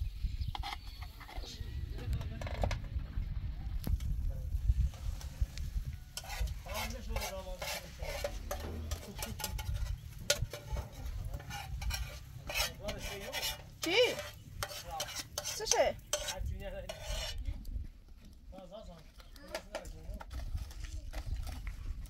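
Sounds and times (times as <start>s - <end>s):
stirring and scraping in a metal pot: 0.4s - 1.6s, 4.7s - 18.3s, 19.0s - 22.0s
metal lid clinking: 8.2s - 12.7s.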